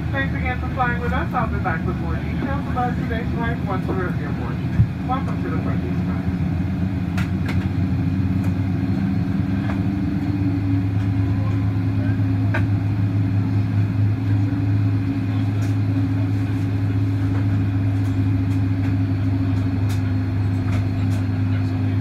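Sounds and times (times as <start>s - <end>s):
aircraft cabin engine hum: 0.0s - 22.0s.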